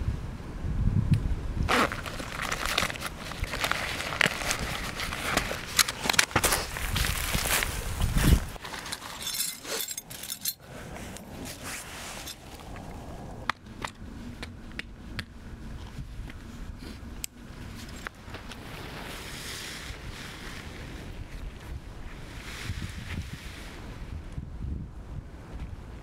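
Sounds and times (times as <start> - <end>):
tent poles clicking and clinking: 1.7 - 12.7
tent fabric rustling: 1.7 - 13.0, 17.6 - 24.0.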